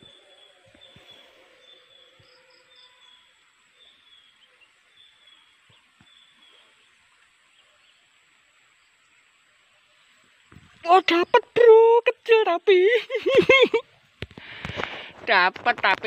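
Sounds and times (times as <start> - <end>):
thin high insect whine: 0.0 - 11.8
insect high chirp: 0.0 - 13.8.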